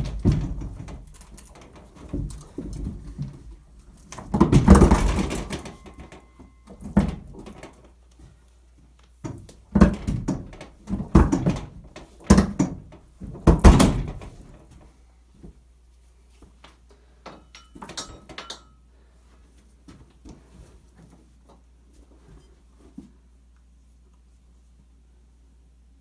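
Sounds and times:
safe rumbling and thudding: 0.0 - 7.8.

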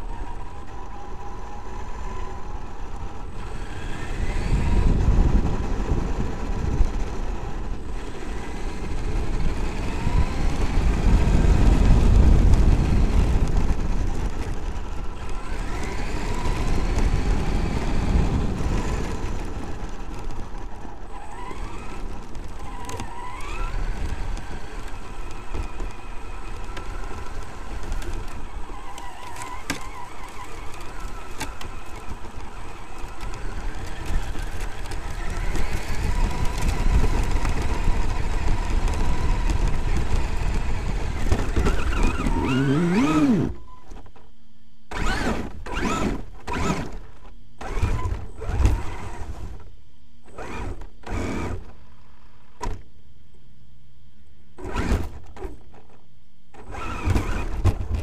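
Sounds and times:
tyres rumbling on gravel: 0.0 - 43.6, 56.6 - 58.0
electric motor whining: 0.0 - 44.0, 44.9 - 52.4, 56.6 - 58.0.

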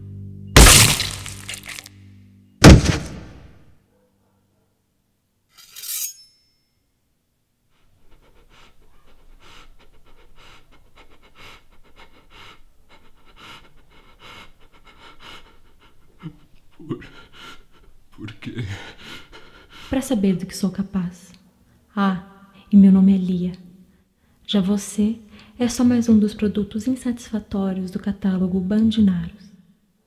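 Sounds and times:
high-pitched clink: 5.6 - 6.8
person panting: 7.8 - 18.0, 18.6 - 19.9.

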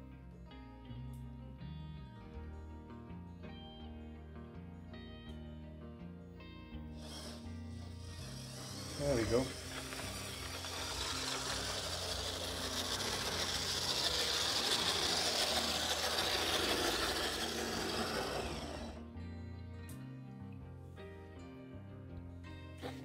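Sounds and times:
model train motor whirring: 6.9 - 19.0.

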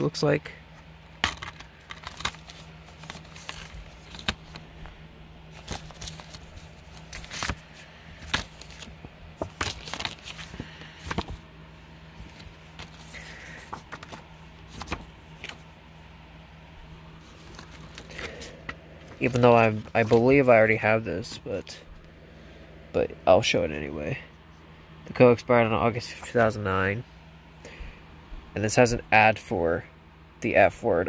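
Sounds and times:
faint low hum: 0.0 - 31.0
paper rustling: 1.2 - 4.9, 5.5 - 11.4, 12.2 - 15.7, 17.2 - 20.5.

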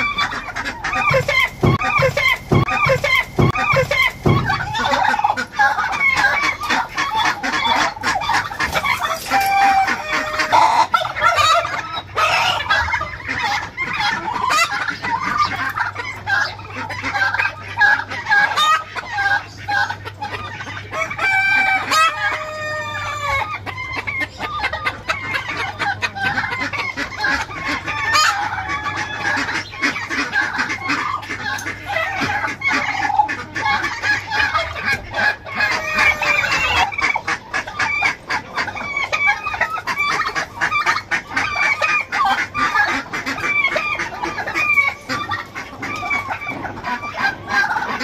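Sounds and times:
chickens and turkeys clucking: 0.0 - 48.0
roosters crowing: 0.0 - 48.0
rapid rattling bird call: 0.1 - 9.9.

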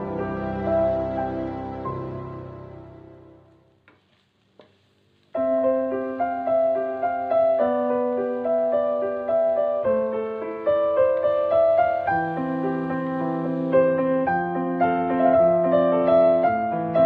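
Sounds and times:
background piano music: 0.0 - 3.7, 5.4 - 17.0.

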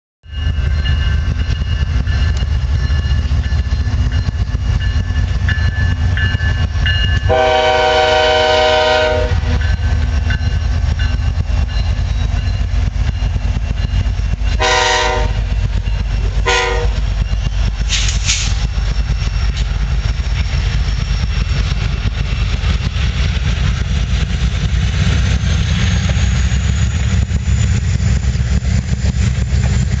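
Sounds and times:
freight train rumbling: 0.2 - 30.0
train air horn: 7.3 - 9.6, 14.6 - 15.5, 16.4 - 17.0.

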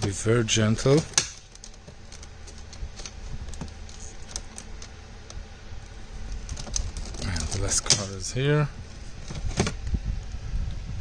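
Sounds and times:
plastic air vent clicks and rattles: 0.0 - 5.4, 6.3 - 8.3
low steady hum: 0.0 - 11.0.

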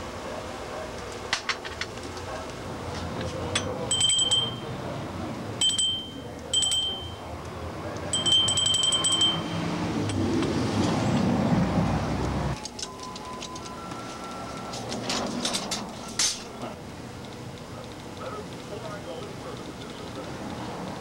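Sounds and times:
hand bell ringing: 3.9 - 4.8, 5.6 - 7.3, 8.1 - 10.2.

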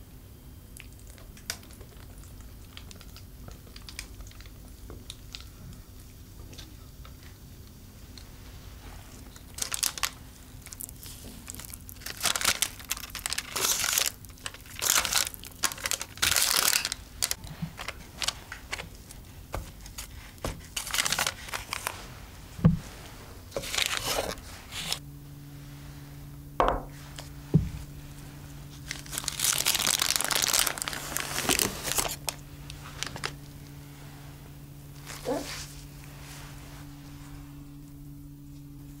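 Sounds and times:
steady low hum: 0.0 - 39.0
parchment paper crinkling: 8.8 - 22.4, 23.5 - 25.0, 27.9 - 33.8.

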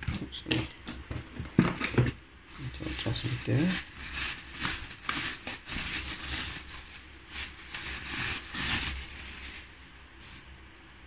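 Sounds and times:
bubble wrap crinkling: 0.1 - 10.6.

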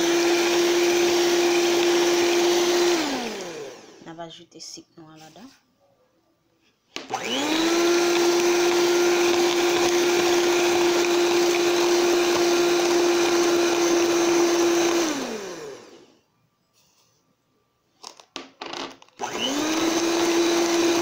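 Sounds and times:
electric hand mixer whine: 0.0 - 4.0, 7.1 - 16.2, 19.2 - 21.0.

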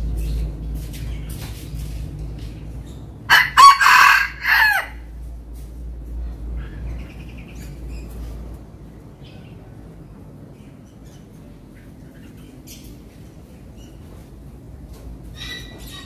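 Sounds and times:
rooster crowing: 3.3 - 5.1.

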